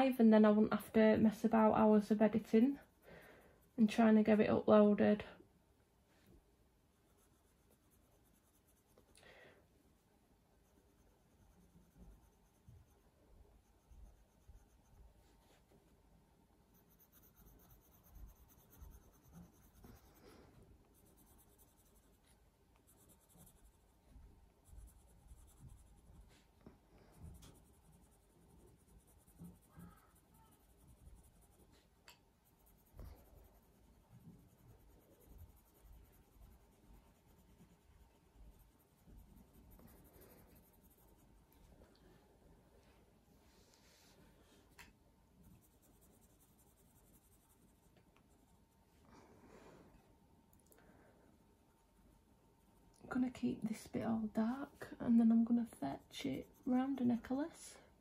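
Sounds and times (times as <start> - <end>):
pencil scratching on paper: 6.9 - 9.1, 10.5 - 15.8, 16.7 - 41.5, 45.4 - 48.7, 53.8 - 57.4.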